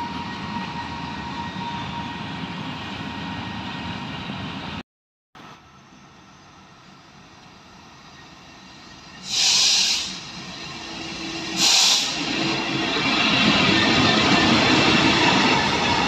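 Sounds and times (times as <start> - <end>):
diesel locomotive engine: 0.0 - 4.8, 5.4 - 16.0
train wheel noise: 5.6 - 16.0
loud hiss bursts: 9.2 - 10.4, 11.4 - 12.3.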